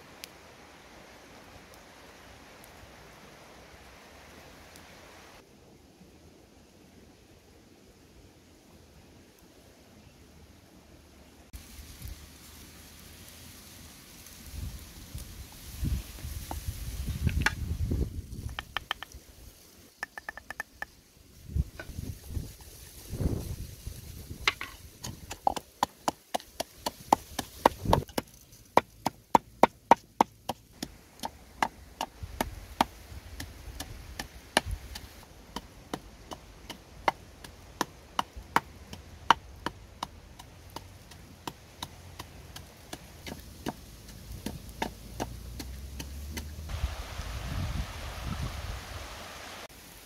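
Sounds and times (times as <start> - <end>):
wooden pestle pounding in mortar: 24.5 - 28.2.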